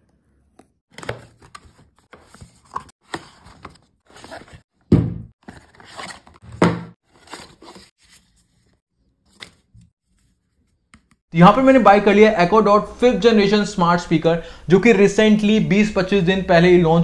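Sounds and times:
cardboard scraping and rustling: 0:01.0 - 0:04.6, 0:05.4 - 0:08.8.

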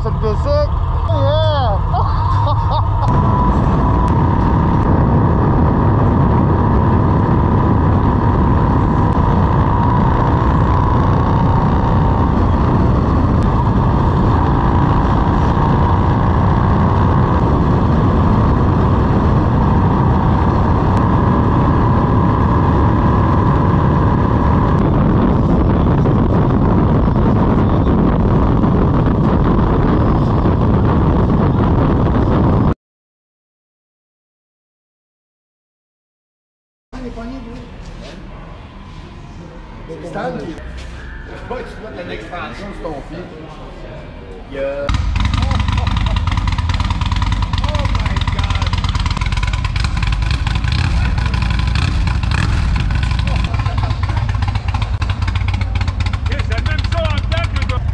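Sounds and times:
motorcycle engine: 0:00.0 - 0:32.8, 0:44.9 - 0:57.9
road noise: 0:00.0 - 0:32.8, 0:37.0 - 0:57.9
wind rush on microphone: 0:00.0 - 0:32.8, 0:44.9 - 0:57.9.

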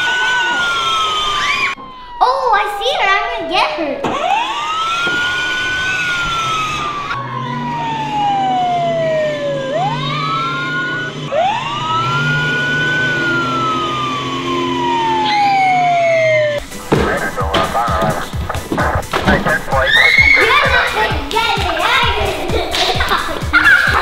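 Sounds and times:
wailing siren: 0:00.0 - 0:02.6, 0:04.1 - 0:18.2, 0:18.8 - 0:21.1.

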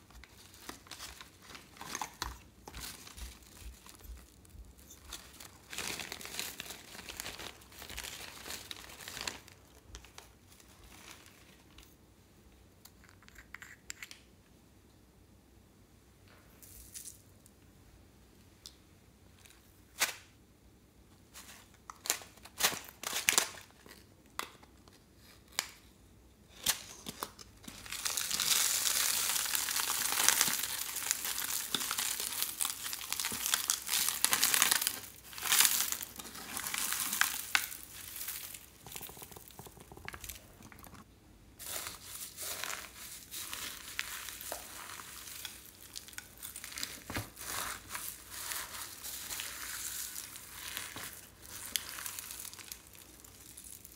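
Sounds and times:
fingers mixing slime and foam beads: 0:27.5 - 0:53.9
slime crackling: 0:27.7 - 0:41.0, 0:41.6 - 0:53.9.

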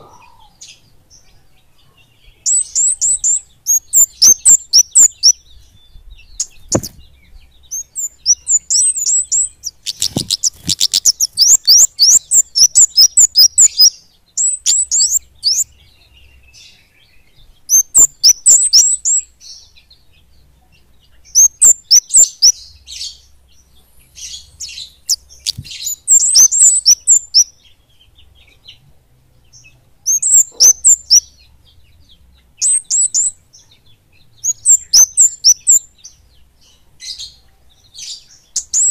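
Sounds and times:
high-pitched bird chirps: 0:02.3 - 0:16.5, 0:17.7 - 0:19.4, 0:21.3 - 0:23.3, 0:24.1 - 0:27.6, 0:29.6 - 0:31.4, 0:32.6 - 0:33.8, 0:34.4 - 0:36.0, 0:38.0 - 0:38.9.

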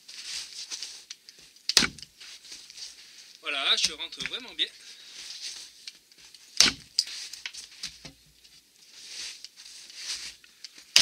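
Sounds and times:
axe striking wood: 0:01.7 - 0:02.1, 0:06.6 - 0:07.0
wood knocking and cracking: 0:01.7 - 0:02.1, 0:03.8 - 0:04.5, 0:06.6 - 0:08.2.

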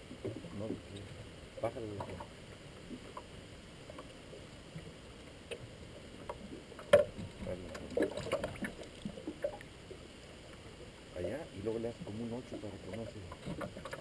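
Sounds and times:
water lapping at boat hull: 0:00.0 - 0:11.0, 0:11.6 - 0:14.0
splashes: 0:06.8 - 0:09.6.

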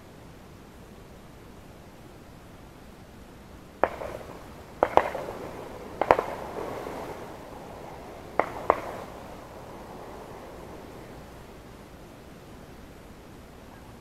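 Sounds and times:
shotgun shots with echo: 0:03.8 - 0:11.7.

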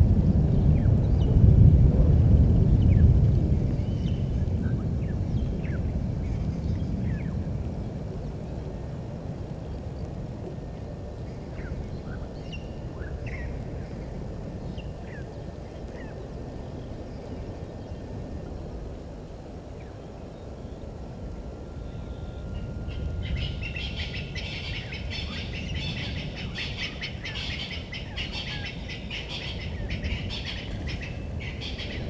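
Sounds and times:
low background rumble: 0:00.0 - 0:32.0.

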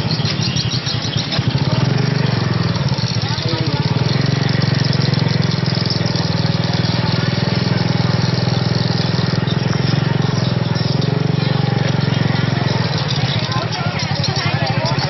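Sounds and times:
motorbike engine idling: 0:00.0 - 0:15.0.

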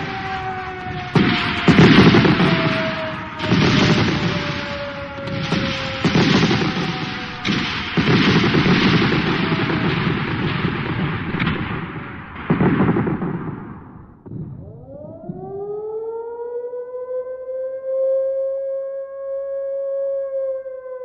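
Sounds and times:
heavy blasts: 0:00.0 - 0:15.1
explosions and gunfire: 0:00.0 - 0:15.6
faint tone falling in pitch: 0:14.4 - 0:21.0.

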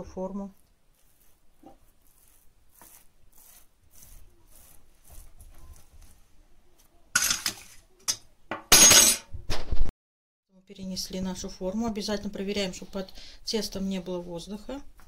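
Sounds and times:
soft rubbing of dough: 0:00.0 - 0:08.0, 0:12.5 - 0:15.0
kitchenware scraping and knocking glass: 0:07.2 - 0:09.3.

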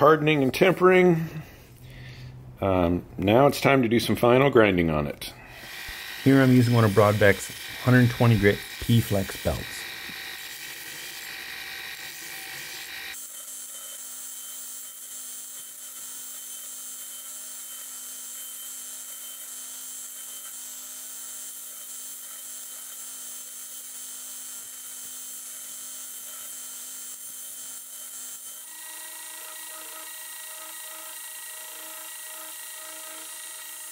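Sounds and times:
grinder machine hum: 0:05.4 - 0:13.2, 0:27.1 - 0:33.9
belt grinder grinding steel: 0:05.4 - 0:33.9.

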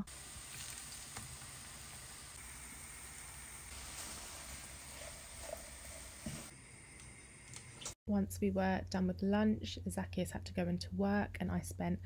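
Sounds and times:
food sizzling in oil: 0:00.0 - 0:08.0
wooden spatula stirring: 0:03.7 - 0:06.5.

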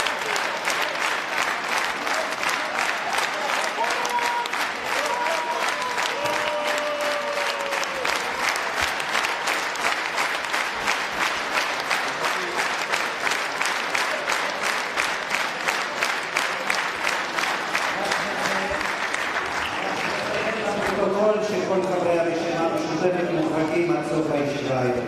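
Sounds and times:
crowd clapping in rhythm: 0:00.0 - 0:24.3.

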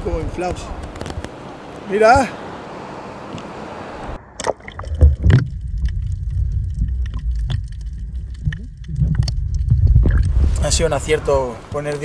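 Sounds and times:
underwater clicks and knocks: 0:04.4 - 0:10.5
muffled underwater rumble: 0:04.7 - 0:11.8.

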